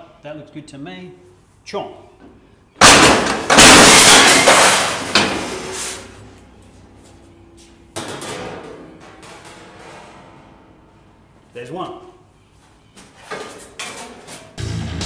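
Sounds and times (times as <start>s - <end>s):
metal clattering: 2.8s - 6.1s, 8.0s - 11.1s
guillotine shear crashing through metal: 2.8s - 6.2s.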